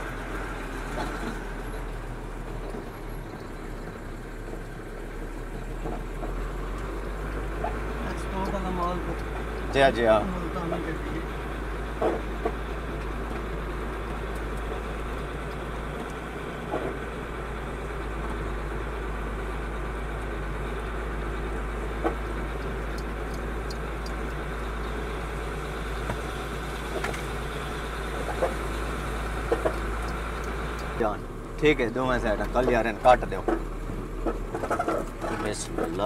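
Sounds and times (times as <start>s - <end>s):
diesel engine running: 0.0s - 36.0s.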